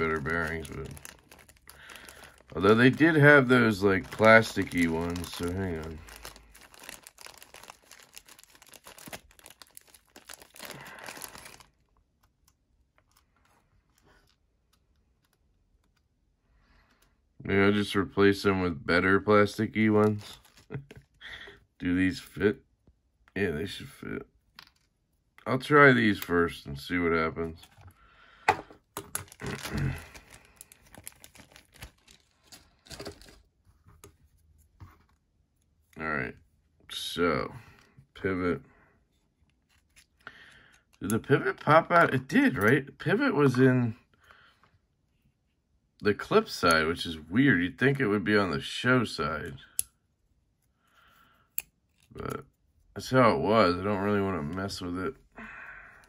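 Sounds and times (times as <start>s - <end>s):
bag crinkling: 0.0s - 12.0s, 19.8s - 21.2s, 28.8s - 33.5s.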